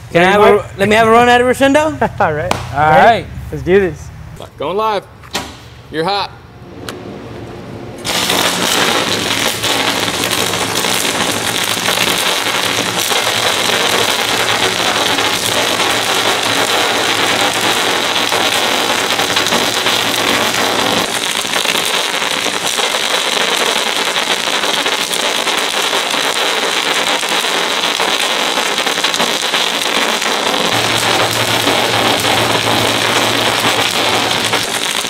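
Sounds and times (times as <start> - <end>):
welding arc crackling: 8.0 - 35.0.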